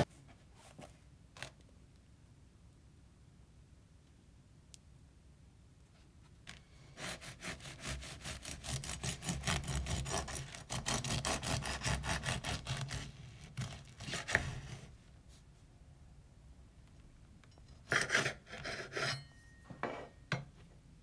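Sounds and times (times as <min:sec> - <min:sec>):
bread knife sawing through loaf: 0:06.9 - 0:15.0, 0:17.9 - 0:19.2.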